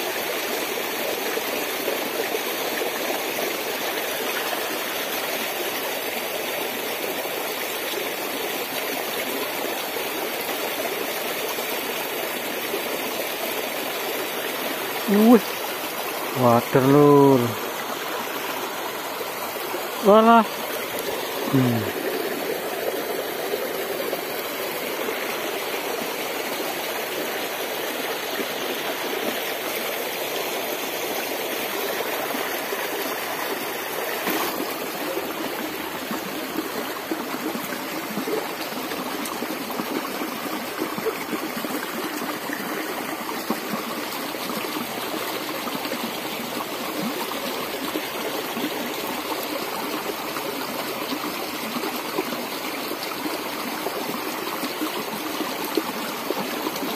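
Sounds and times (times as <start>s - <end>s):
stream water running over rocks: 0.0s - 56.9s.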